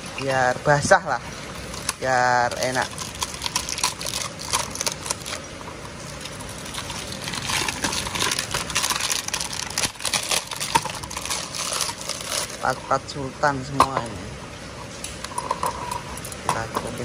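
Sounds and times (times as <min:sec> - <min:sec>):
plastic wrapping crinkling: 0:01.0 - 0:13.1.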